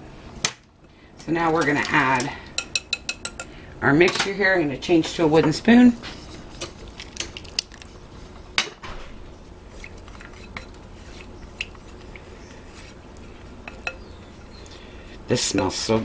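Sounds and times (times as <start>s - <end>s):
low steady hum: 0.0s - 16.0s
egg mixture pouring: 6.3s - 8.5s.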